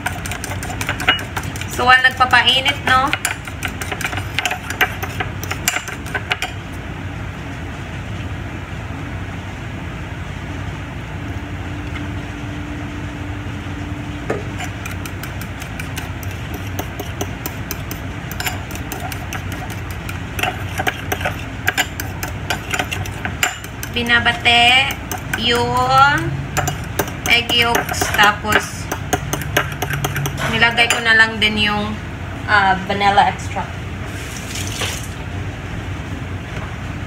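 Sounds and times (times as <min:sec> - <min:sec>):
spoon clinking against bowl: 0:00.0 - 0:01.7, 0:14.6 - 0:25.9, 0:26.6 - 0:31.2
steady low hum: 0:00.0 - 0:37.0.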